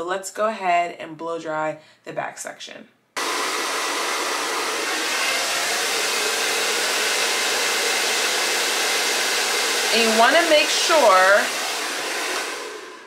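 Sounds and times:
hair dryer blowing: 3.2s - 13.0s.

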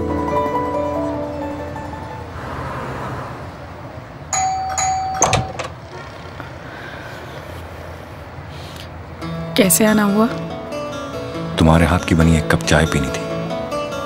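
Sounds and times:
doorbell chime: 4.3s - 5.6s.

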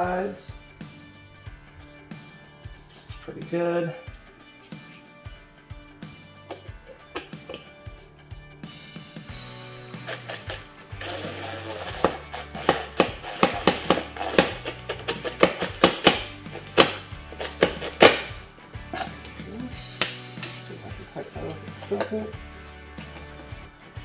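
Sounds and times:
background music with bass line: 0.0s - 24.0s
sharp percussive hits: 11.9s - 19.3s.

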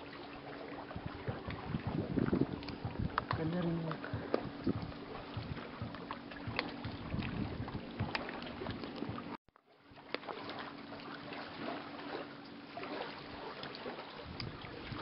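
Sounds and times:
boat engine hum: 0.0s - 15.0s
water: 0.0s - 15.0s
wind on microphone: 0.8s - 9.4s, 14.1s - 15.0s.

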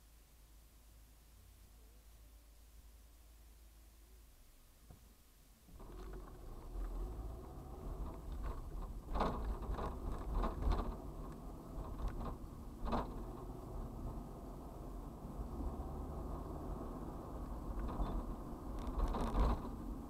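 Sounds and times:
engine and road rumble: 5.6s - 20.0s
sharp knocks or rattles: 8.0s - 13.6s.

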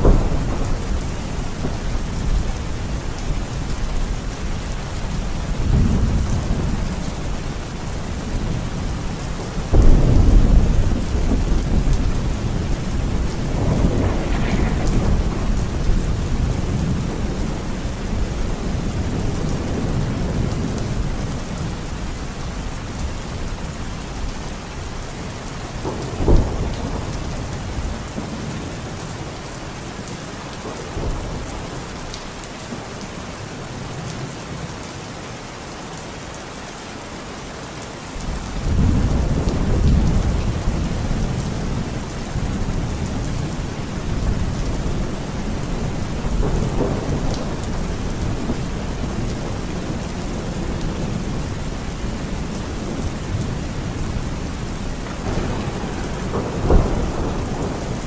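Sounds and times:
thunder rumbling: 0.0s - 24.3s, 25.8s - 29.4s, 38.2s - 58.0s
heavy rain pouring: 0.0s - 58.0s
sharp thunder crack: 9.7s - 17.8s.

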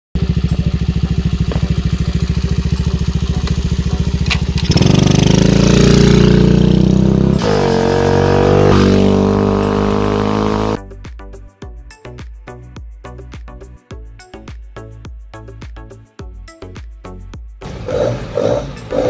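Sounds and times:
low droning tone: 0.2s - 4.8s
small engine idling: 0.2s - 6.8s.

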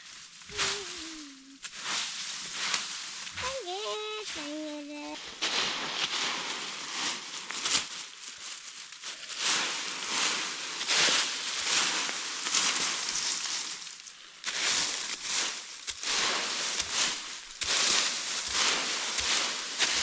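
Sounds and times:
dry leaves rustling and crunching: 0.0s - 20.0s.

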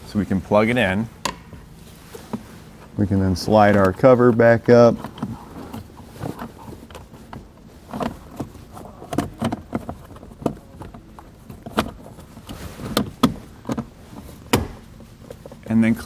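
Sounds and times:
plastic scraping on plastic: 3.7s - 14.5s.

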